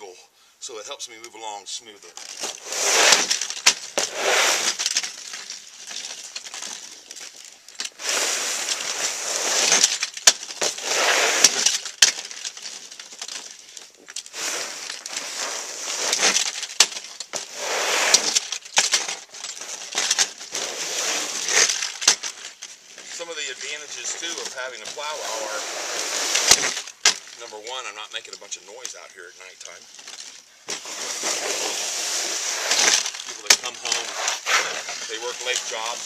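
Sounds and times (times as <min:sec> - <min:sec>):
snow plow blade scraping snow: 0:02.5 - 0:04.9, 0:07.9 - 0:10.0, 0:10.6 - 0:11.8, 0:14.3 - 0:16.5, 0:17.4 - 0:18.4, 0:20.5 - 0:21.8, 0:23.2 - 0:26.8, 0:30.8 - 0:36.0.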